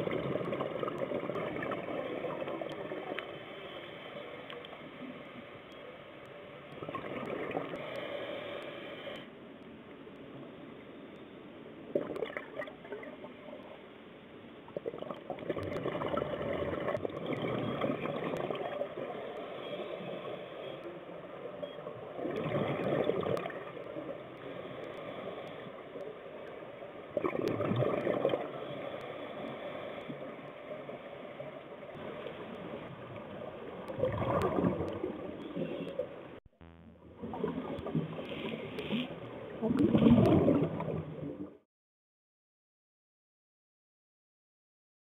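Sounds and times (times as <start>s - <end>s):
water bubbling and gurgling: 0.0s - 3.5s, 6.7s - 8.1s, 11.9s - 13.6s, 14.7s - 20.4s, 21.2s - 41.6s.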